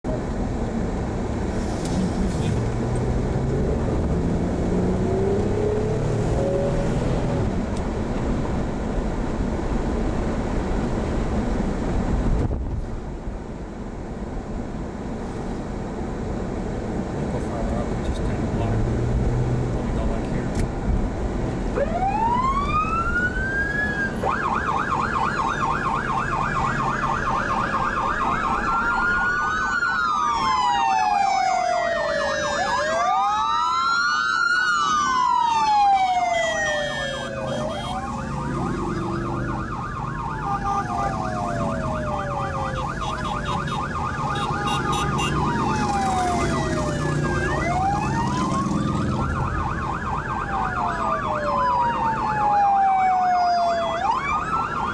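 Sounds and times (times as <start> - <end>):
motorcycle engines passing: 2.2 - 7.6, 36.0 - 52.0
sirens wailing: 2.2 - 7.7, 21.6 - 54.9
police siren yelp: 21.7 - 54.9.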